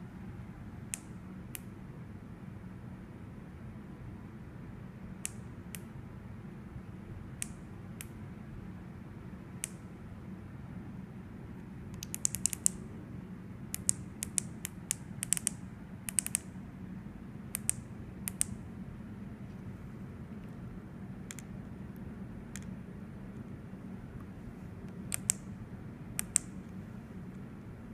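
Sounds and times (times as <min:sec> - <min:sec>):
low steady hum: 0:00.0 - 0:27.9
light sharp clicks: 0:09.6 - 0:09.8, 0:11.9 - 0:12.8, 0:13.7 - 0:16.5, 0:17.5 - 0:18.6, 0:21.3 - 0:22.8, 0:24.2 - 0:25.5, 0:26.2 - 0:27.4.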